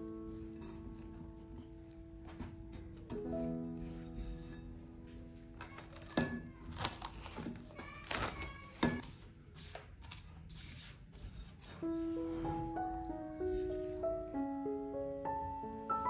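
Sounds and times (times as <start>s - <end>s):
gentle background music: 0.0s - 8.4s, 11.6s - 16.0s
cling film crinkling: 5.5s - 9.0s.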